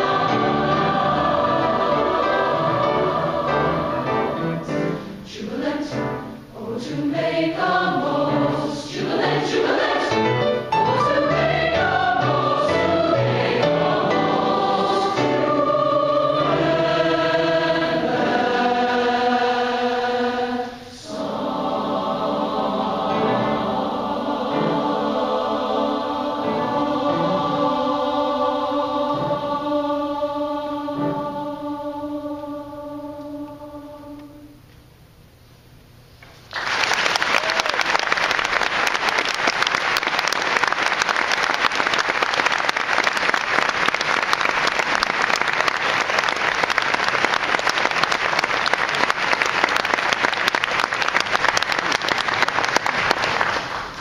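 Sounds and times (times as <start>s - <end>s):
mixed chorus holding a chord: 0.0s - 34.6s
audience applauding: 36.5s - 54.0s.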